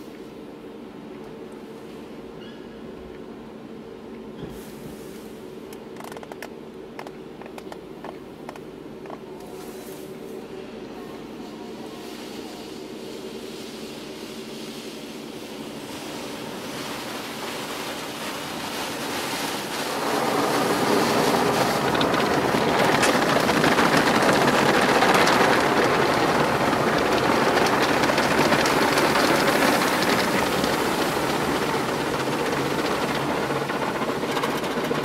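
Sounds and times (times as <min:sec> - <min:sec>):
car wash water spraying on car: 0:14.2 - 0:35.0.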